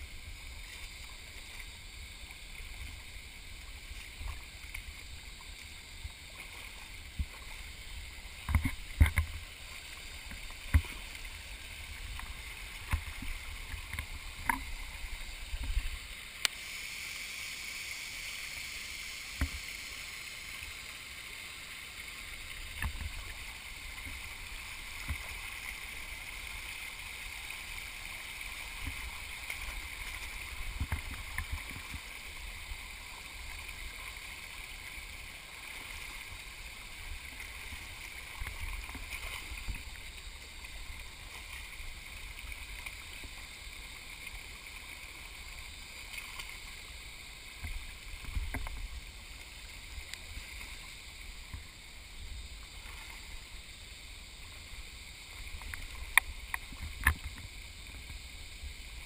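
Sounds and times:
stream running over rocks: 0:00.0 - 0:59.0
feet wading through water: 0:00.1 - 0:16.4, 0:21.6 - 0:53.7.

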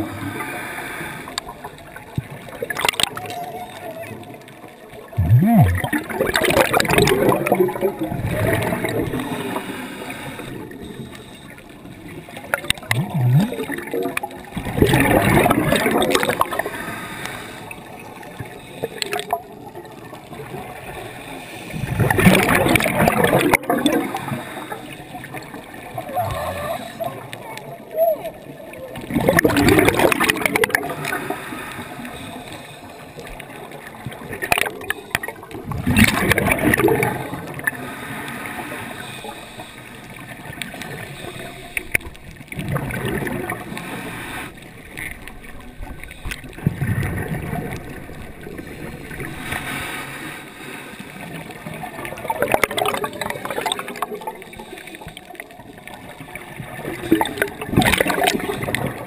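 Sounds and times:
steady underwater hiss: 0:00.0 - 0:59.0
bubbles gurgling underwater: 0:01.4 - 0:11.2, 0:11.9 - 0:16.9, 0:21.7 - 0:27.4, 0:28.4 - 0:31.4, 0:33.3 - 0:37.9, 0:40.1 - 0:43.9, 0:44.8 - 0:49.5, 0:51.0 - 0:59.0.

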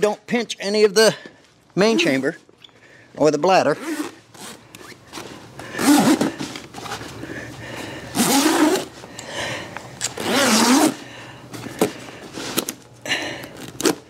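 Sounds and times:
zipper and fabric scraping: 0:03.8 - 0:06.4, 0:08.2 - 0:08.9, 0:10.2 - 0:11.0.

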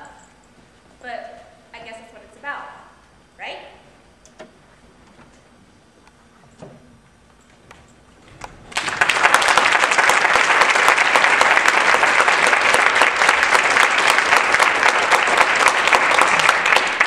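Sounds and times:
audience applauding: 0:08.4 - 0:17.0.

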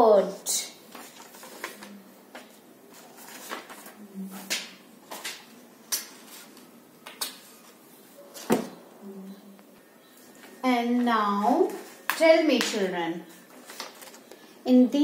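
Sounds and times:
paper rustling: 0:00.9 - 0:07.8, 0:11.7 - 0:14.4.

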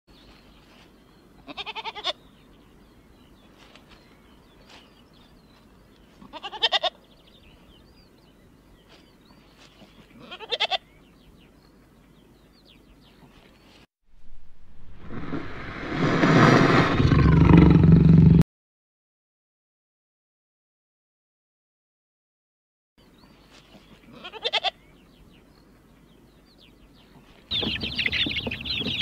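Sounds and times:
goat bleating: 0:01.4 - 0:02.2, 0:06.1 - 0:07.0, 0:10.1 - 0:11.0, 0:24.1 - 0:24.9.

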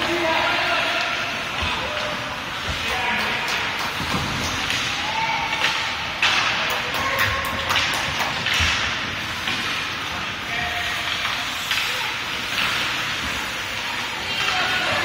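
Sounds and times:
skates scraping ice: 0:00.0 - 0:15.0
stick hitting puck: 0:02.6 - 0:09.8.

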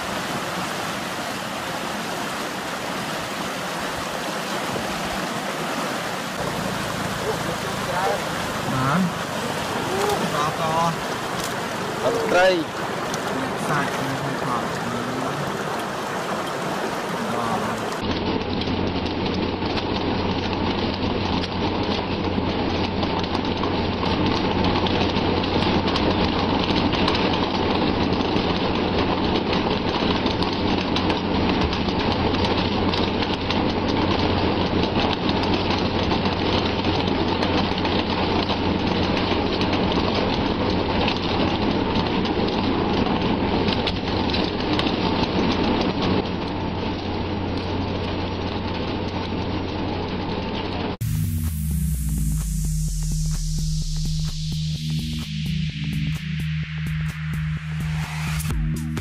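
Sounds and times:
sea spray splashing on hull: 0:00.0 - 0:18.0
low machinery hum: 0:00.0 - 0:59.0.

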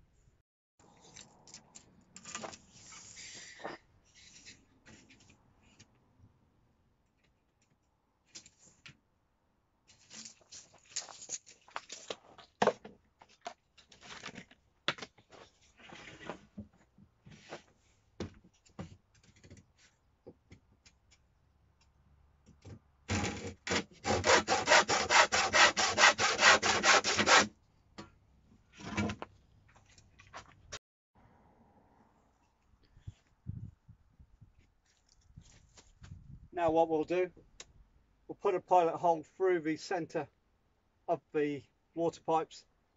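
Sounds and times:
handsaw cutting wood: 0:23.1 - 0:27.5.

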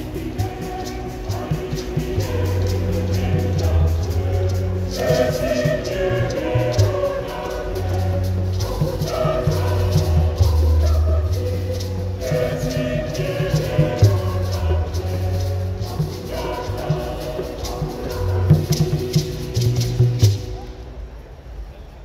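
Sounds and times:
choir singing a hymn: 0:00.0 - 0:20.6
drum: 0:00.0 - 0:20.7
shaker beat: 0:00.0 - 0:21.0.

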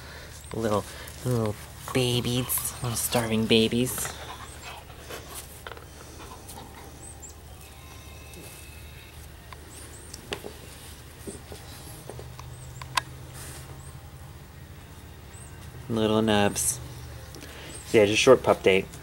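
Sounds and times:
puppies shifting and rustling: 0:00.0 - 0:07.2
low steady hum: 0:00.0 - 0:19.0
puppies chirping: 0:02.0 - 0:08.8, 0:09.5 - 0:13.0.

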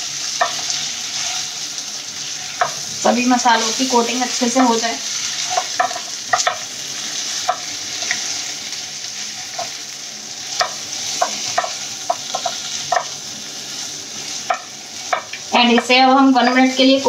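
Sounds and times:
food sizzling in oil: 0:00.0 - 0:17.0
spatula clacking and scraping pan: 0:00.3 - 0:01.5, 0:02.5 - 0:02.8, 0:05.2 - 0:06.7, 0:07.4 - 0:08.3, 0:10.5 - 0:13.2, 0:14.3 - 0:16.8.

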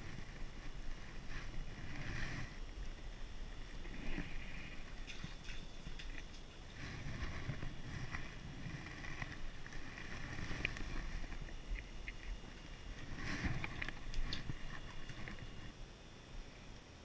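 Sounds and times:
clothing rustling on camera: 0:00.0 - 0:11.8, 0:12.4 - 0:15.7.

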